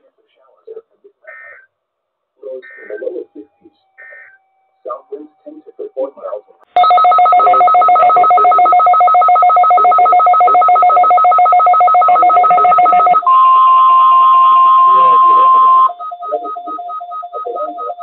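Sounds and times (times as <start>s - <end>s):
steady alarm tone: 6.8s - 18.0s
two-pitch electronic alarm beeps: 6.8s - 18.0s.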